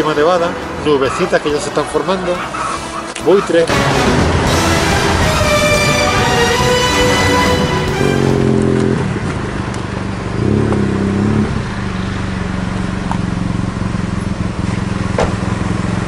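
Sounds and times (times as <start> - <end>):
car engine idling: 8.2 - 16.0.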